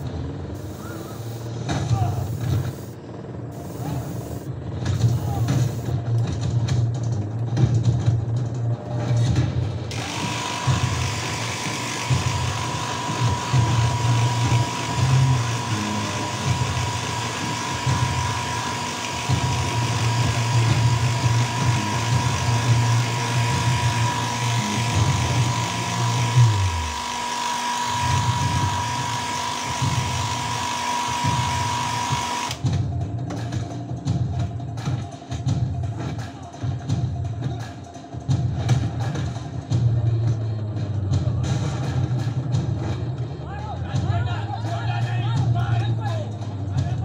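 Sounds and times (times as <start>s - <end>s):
hair dryer blowing: 0.6s - 1.6s, 9.9s - 32.6s.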